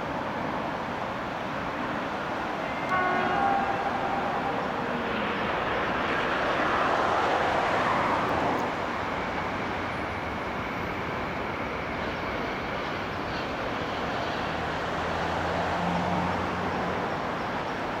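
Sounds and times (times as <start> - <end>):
train rolling rumble: 0.0 - 18.0.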